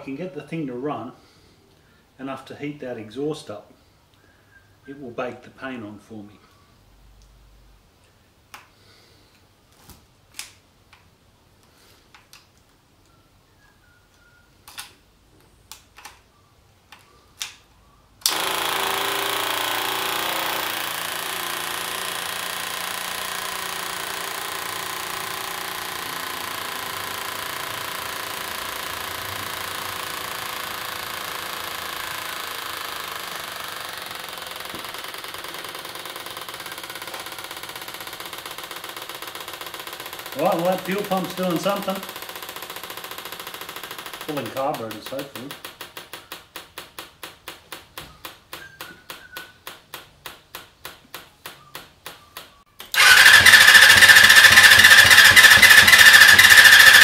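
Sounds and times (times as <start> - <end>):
electric fuel pump running: 18.2 - 45.9, 52.8 - 57.0.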